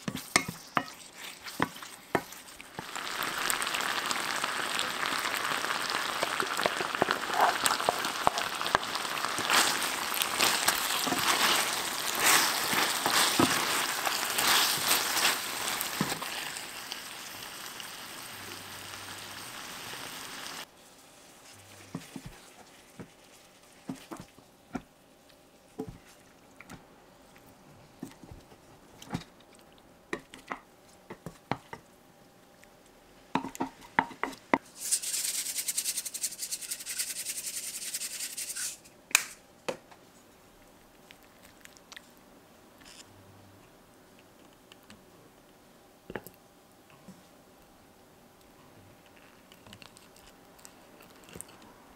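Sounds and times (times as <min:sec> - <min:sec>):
sauce bubbling and sizzling in a pan: 0:00.0 - 0:24.4.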